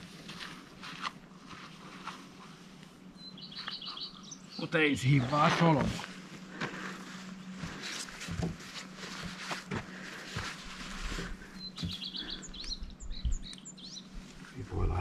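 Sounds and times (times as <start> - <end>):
small bird chirping: 3.2 - 4.8, 11.6 - 14.2
tent fabric rustling: 5.3 - 11.6.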